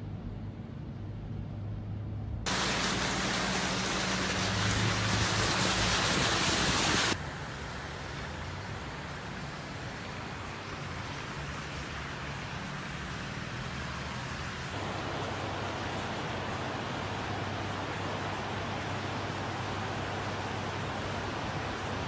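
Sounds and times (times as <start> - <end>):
loud bright hiss: 2.5 - 7.2
wet tyres hissing: 2.5 - 7.2.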